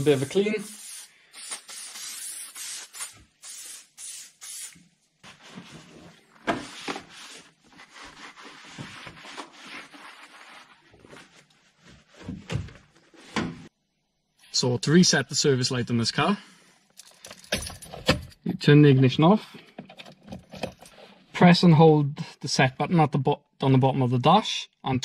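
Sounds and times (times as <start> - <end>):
aerosol can spraying: 0.0 - 4.8
cloth wiping plastic: 0.0 - 13.4.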